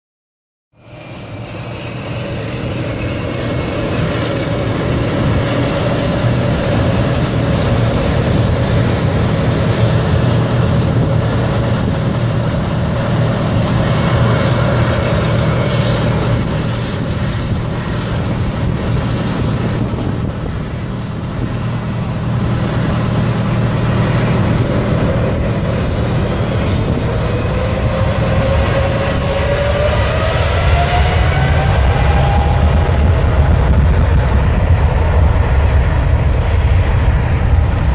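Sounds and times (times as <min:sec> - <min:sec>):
jet engines rumbling: 0:00.8 - 0:37.9.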